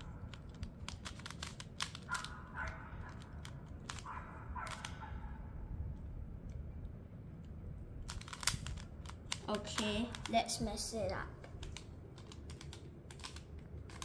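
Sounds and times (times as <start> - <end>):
puzzle cube clicking: 0.0 - 5.0, 7.4 - 10.6, 11.4 - 14.0.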